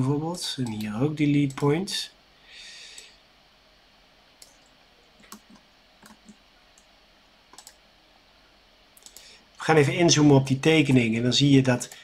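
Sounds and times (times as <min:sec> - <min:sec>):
computer mouse clicks: 0:04.4 - 0:06.9, 0:07.5 - 0:07.8, 0:09.0 - 0:09.3.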